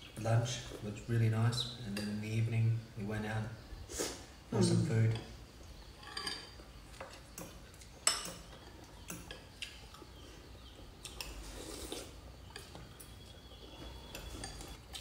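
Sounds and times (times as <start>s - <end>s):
cutlery clinking on bowls: 6.0s - 9.8s, 13.8s - 14.8s.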